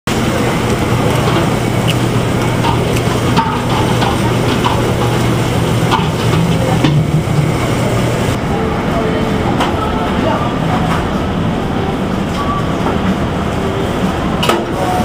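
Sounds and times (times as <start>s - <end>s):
low machine hum: 0.1s - 15.0s.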